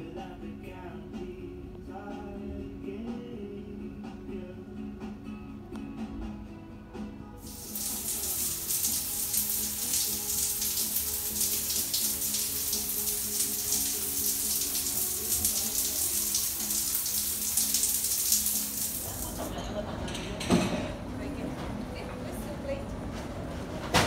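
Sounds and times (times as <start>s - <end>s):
shower water rushing: 7.4s - 19.6s.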